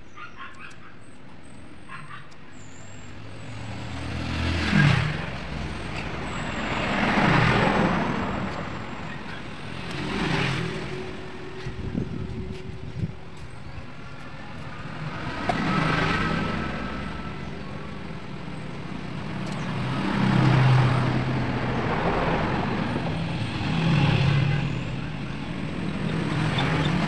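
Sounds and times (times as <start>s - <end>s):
vehicles passing: 0.0s - 27.0s.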